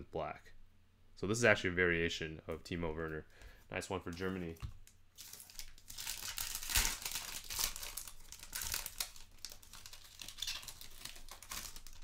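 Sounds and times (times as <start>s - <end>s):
foil wrapper tearing and crinkling: 5.2s - 12.0s.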